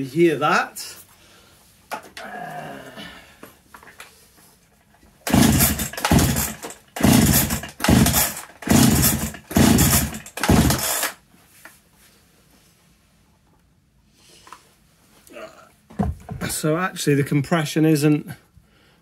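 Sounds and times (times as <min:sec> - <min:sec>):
chainsaw recoil starter pulls: 0:05.2 - 0:11.2.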